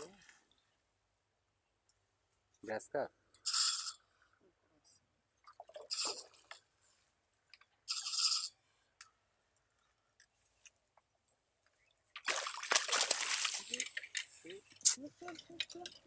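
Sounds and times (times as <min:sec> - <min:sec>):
fishing reel cranking: 0:03.4 - 0:04.0, 0:05.9 - 0:06.3, 0:07.9 - 0:08.5
fish splashing in water: 0:12.2 - 0:14.2.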